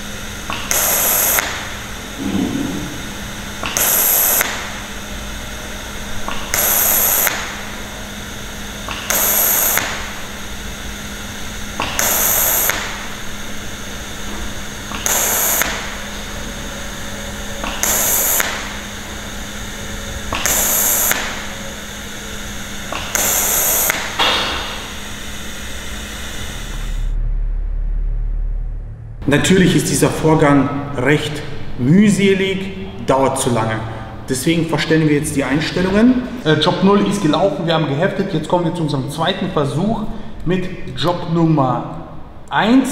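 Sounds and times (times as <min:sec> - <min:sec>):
welding arc bursts: 0:00.0 - 0:27.2
steady low hum: 0:00.0 - 0:42.9.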